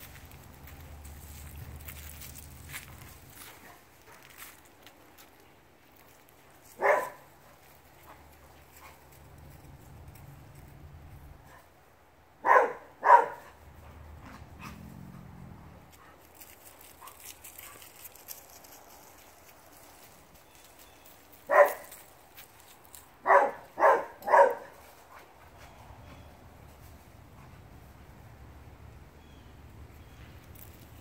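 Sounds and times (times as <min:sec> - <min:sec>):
dog barking: 0:06.8 - 0:07.3, 0:12.4 - 0:13.6, 0:21.5 - 0:21.9, 0:23.2 - 0:24.8.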